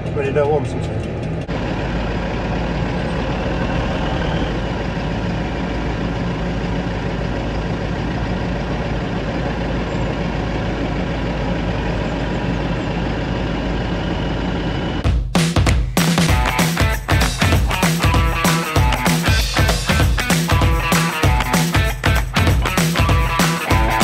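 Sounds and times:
tractor diesel engines running: 0.0s - 15.1s, 16.3s - 24.0s.

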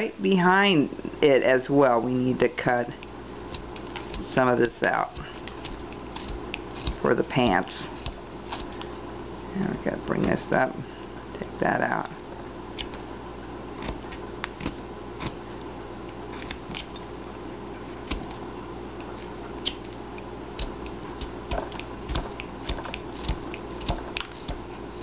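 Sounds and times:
knife whittling wood: 3.3s - 8.9s, 20.6s - 25.0s.

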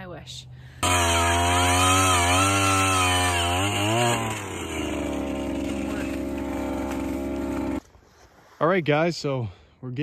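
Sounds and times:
ice auger engine running: 0.8s - 7.8s.

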